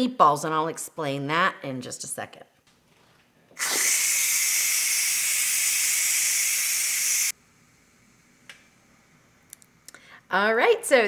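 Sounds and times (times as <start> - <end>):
pressure cooker valve hissing steam: 3.6 - 7.4.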